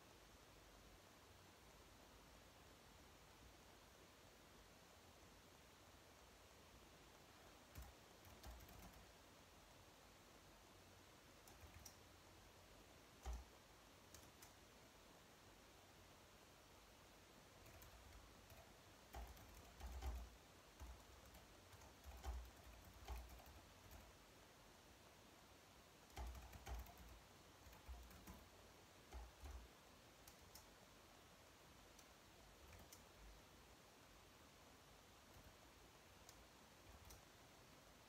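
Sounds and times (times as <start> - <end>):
keyboard typing clicks: 7.7 - 9.1, 11.4 - 12.0, 13.2 - 14.6, 17.6 - 24.1, 26.1 - 28.5, 29.1 - 30.7, 31.9 - 33.2, 36.2 - 37.3.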